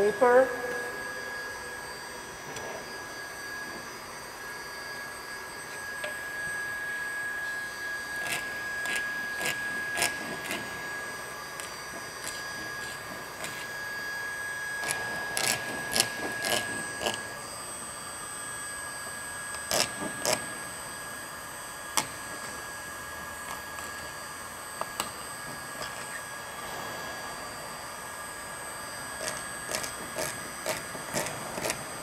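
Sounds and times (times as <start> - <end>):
hand scraper scraping plastic: 8.1 - 10.9, 14.8 - 17.2, 29.2 - 32.0.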